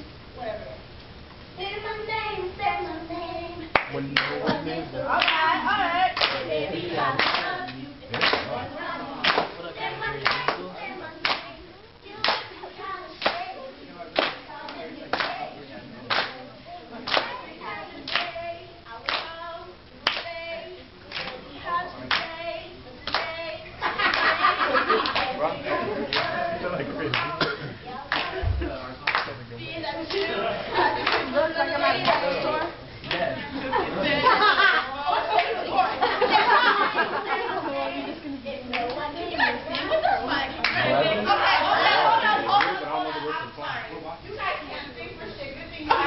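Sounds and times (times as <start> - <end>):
voices singing: 1.6 - 46.0
group clapping: 3.7 - 11.6, 12.2 - 29.4, 30.0 - 33.4, 35.3 - 35.7, 38.7 - 39.0, 39.7 - 41.0, 41.6 - 42.9.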